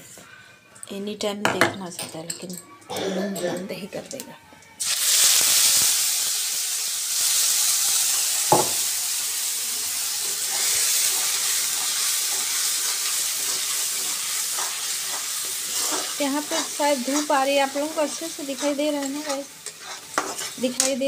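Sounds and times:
spices sizzling in hot oil: 4.8s - 21.0s.

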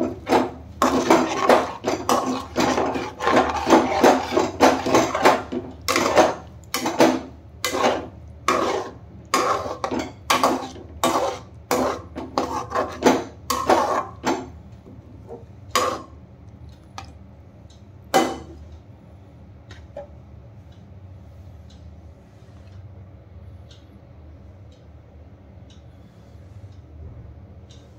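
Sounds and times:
spatula scraping cooking pan: 0.0s - 14.5s, 15.8s - 16.2s.

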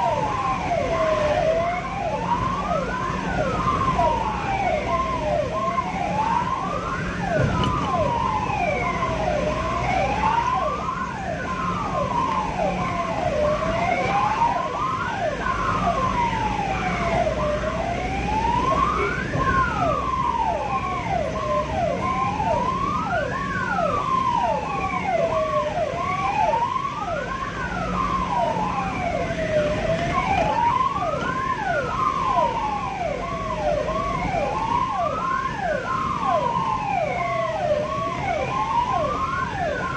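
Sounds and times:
ambulance siren wailing: 0.0s - 39.9s
engine and road rumble: 0.0s - 39.9s.

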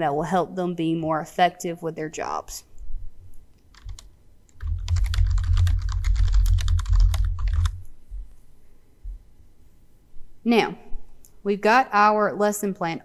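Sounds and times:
typing on computer keyboard: 3.7s - 7.8s.

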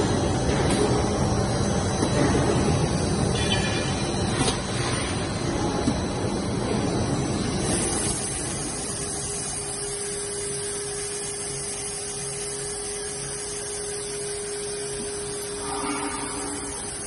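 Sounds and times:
extrusion machine noise: 0.0s - 17.0s
steady hum: 0.0s - 17.0s.

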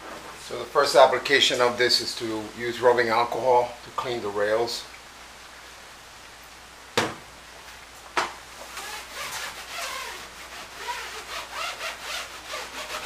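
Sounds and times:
sharp knocks: 7.0s - 7.2s
paper towel squeaky rubbing: 8.6s - 13.0s.

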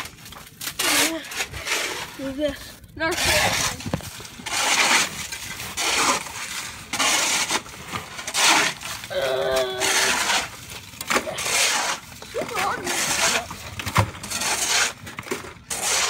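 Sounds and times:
person humming or groaning: 9.1s - 10.1s.

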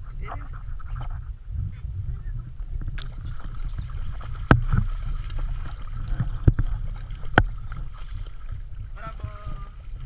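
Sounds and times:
stream babbling: 2.6s - 10.0s
sharp water splashes: 2.9s - 9.5s
dog wading through water: 3.0s - 10.0s.

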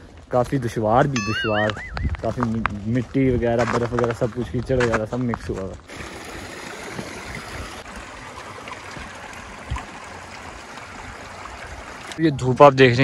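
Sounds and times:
stream running over stones: 3.5s - 13.0s.

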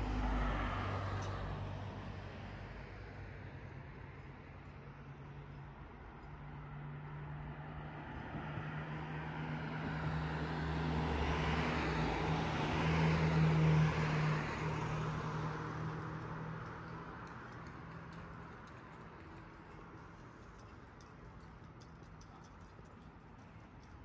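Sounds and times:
car driving past: 0.0s - 2.9s.

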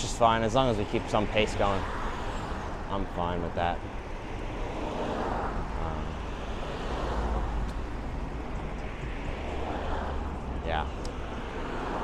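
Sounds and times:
city road traffic: 0.0s - 12.0s.

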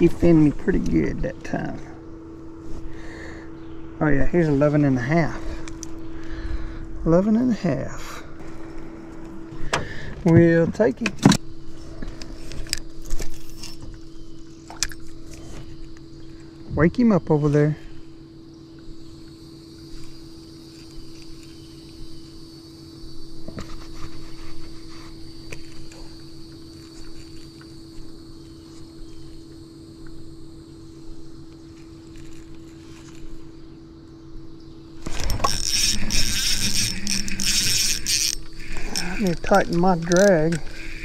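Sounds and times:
small electric motor hum: 0.0s - 41.0s
rustling and fishing reel handling: 10.2s - 16.5s, 23.5s - 28.1s, 31.6s - 33.5s, 35.0s - 41.0s.

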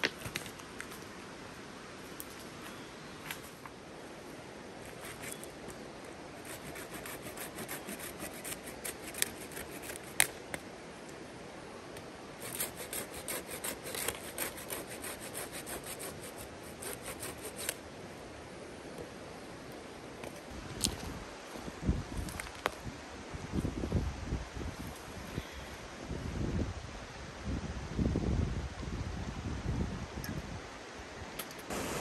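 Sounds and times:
hand tool scraping wood: 4.8s - 5.6s, 6.4s - 10.3s, 12.4s - 17.8s.

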